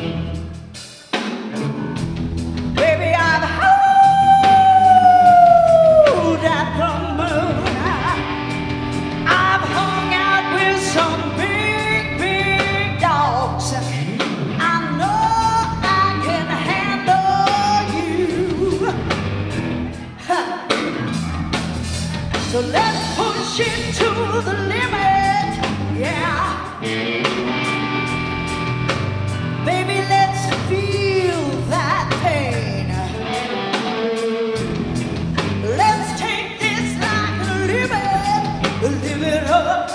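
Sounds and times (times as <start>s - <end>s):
drum kit steady beat: 0.0s - 33.0s
bass guitar: 0.0s - 39.9s
electric guitar: 0.0s - 39.9s
woman singing: 2.8s - 8.5s, 9.2s - 19.2s, 20.0s - 21.0s, 22.3s - 26.9s, 29.6s - 33.5s, 35.4s - 39.9s.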